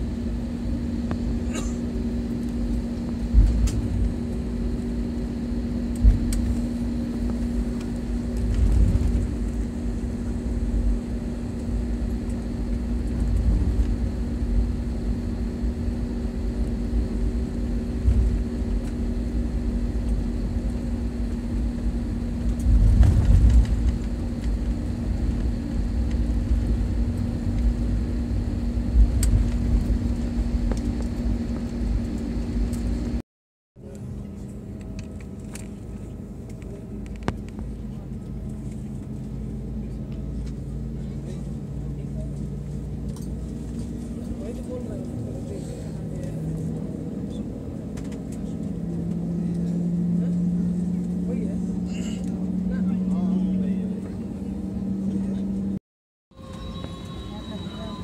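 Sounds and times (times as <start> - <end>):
jet engine hum: 0.0 - 33.2, 33.8 - 55.8, 56.4 - 58.0
low rumble: 0.0 - 33.2.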